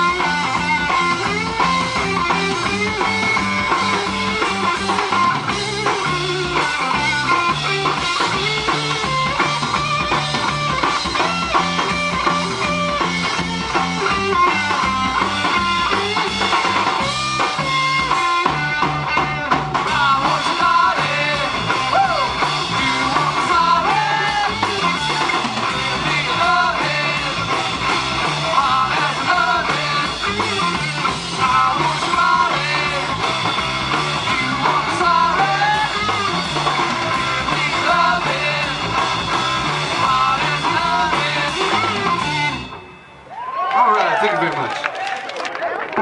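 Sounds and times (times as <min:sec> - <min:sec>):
drum kit: 0:00.0 - 0:43.5
bass guitar: 0:00.0 - 0:43.8
electric guitar: 0:00.0 - 0:43.8
person singing: 0:19.9 - 0:24.7, 0:25.9 - 0:27.4, 0:28.4 - 0:30.4, 0:31.4 - 0:33.2, 0:34.4 - 0:36.1, 0:37.6 - 0:39.0, 0:39.9 - 0:42.1.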